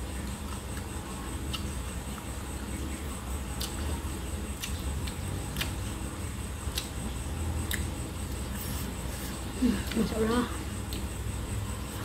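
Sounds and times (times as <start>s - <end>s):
steady low hum: 0.0s - 12.0s
mouth chewing: 0.2s - 6.0s, 6.6s - 10.1s.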